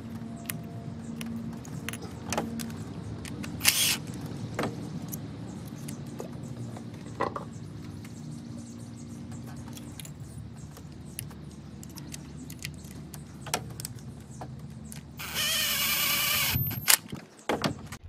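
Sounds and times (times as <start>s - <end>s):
power driver whirring: 3.3s - 4.1s, 15.2s - 17.0s.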